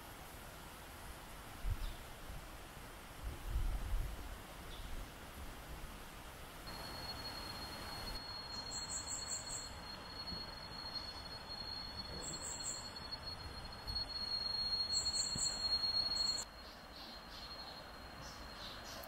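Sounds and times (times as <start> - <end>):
insects high-pitched whine: 6.6 - 19.0
insects pulsed chirping: 6.7 - 19.0.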